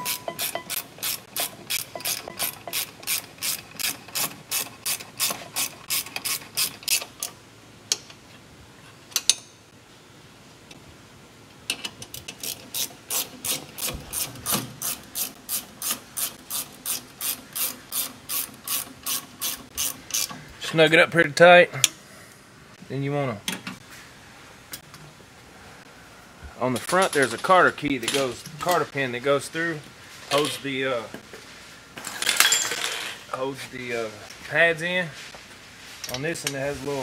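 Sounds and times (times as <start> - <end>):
ratchet wrench clicking: 0.0 - 7.1, 12.2 - 20.3.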